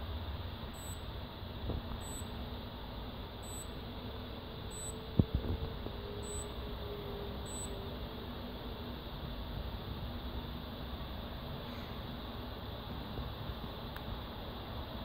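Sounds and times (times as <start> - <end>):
steady low hum: 0.0 - 15.0
short high beeps: 0.8 - 1.0, 2.0 - 2.3, 3.4 - 3.7, 4.7 - 5.0, 6.2 - 6.5, 7.5 - 7.7.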